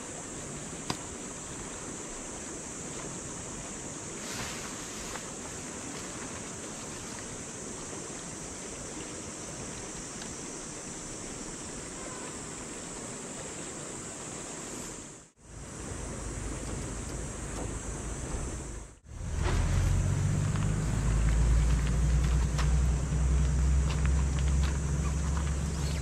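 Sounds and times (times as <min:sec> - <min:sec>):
high hiss: 0:00.0 - 0:26.0
low rumble: 0:15.9 - 0:26.0.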